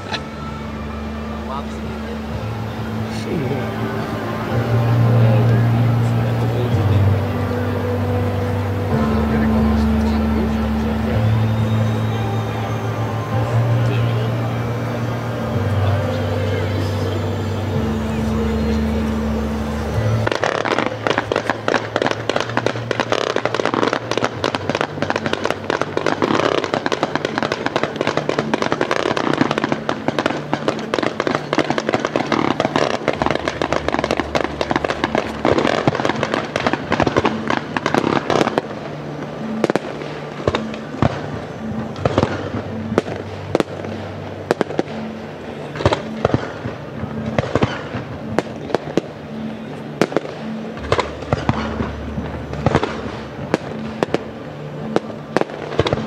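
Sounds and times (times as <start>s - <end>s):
fireworks crackling bangs: 0.0s - 56.0s
music: 0.0s - 56.0s.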